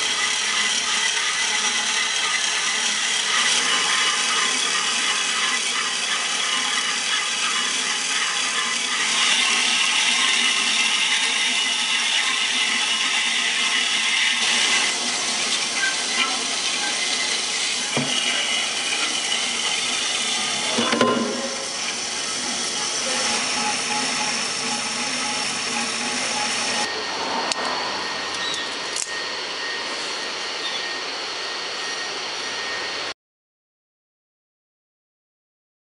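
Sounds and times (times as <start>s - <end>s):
band saw cutting steel pipe: 0.0s - 32.9s.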